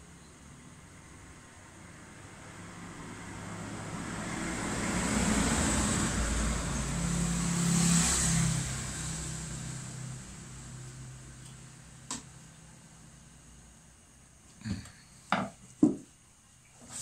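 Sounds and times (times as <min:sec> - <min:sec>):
vehicle engine passing: 0:00.8 - 0:12.1.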